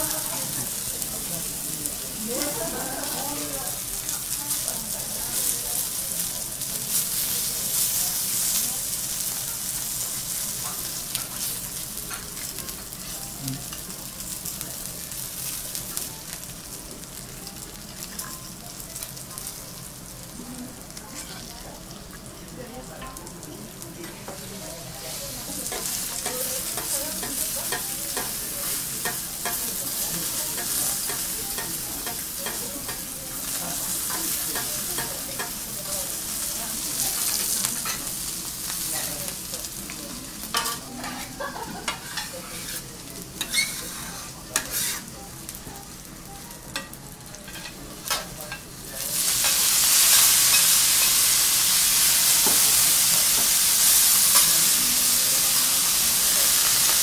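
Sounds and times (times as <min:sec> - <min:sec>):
food sizzling on griddle: 0:00.0 - 0:57.0
metal spatula scraping plate: 0:40.6 - 0:45.1.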